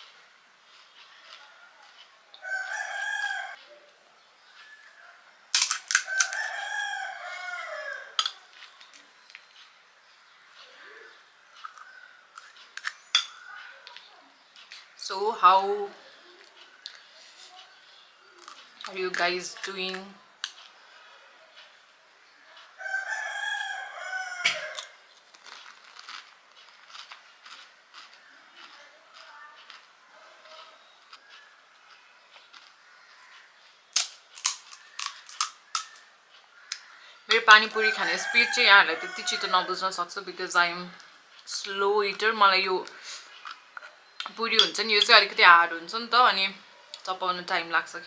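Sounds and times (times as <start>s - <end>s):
rooster crowing: 1.4s - 3.7s, 6.0s - 8.5s, 22.4s - 25.0s, 37.0s - 39.9s
sharp crack: 5.5s - 6.4s, 33.9s - 36.0s
crisp shells being bitten: 5.5s - 6.6s, 24.4s - 32.8s, 33.9s - 36.1s.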